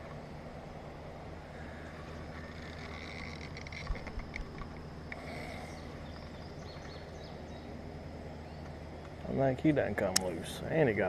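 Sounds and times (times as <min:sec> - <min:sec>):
river ambience: 0:00.0 - 0:11.0
faint bird chirps: 0:05.2 - 0:08.8.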